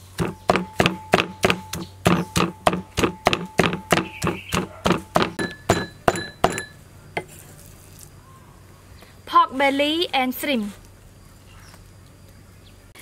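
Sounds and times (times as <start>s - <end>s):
cleaver chopping on cutting board: 0.2s - 6.6s.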